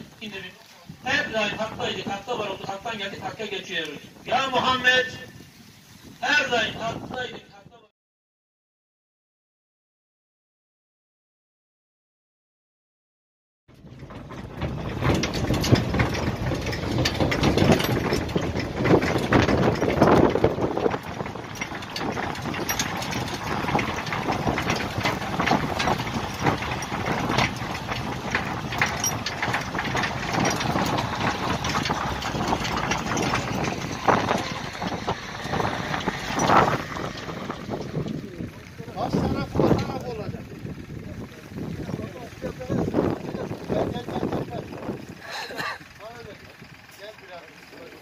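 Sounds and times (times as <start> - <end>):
trailer knocks and rattles: 0.0 - 5.0, 13.7 - 48.0
tractor engine running: 0.0 - 7.4, 13.7 - 48.0.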